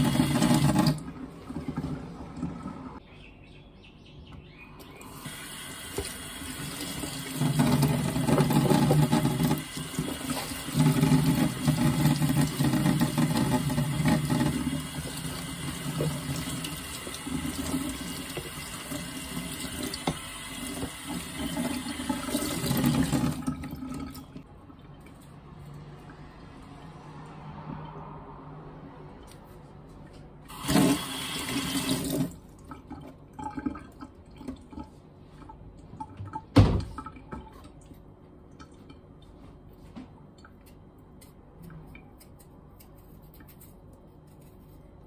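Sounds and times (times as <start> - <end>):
tap water running into sink: 0.0 - 3.0, 5.1 - 24.4, 30.5 - 34.9
cutting board rinsed under water: 5.8 - 24.4.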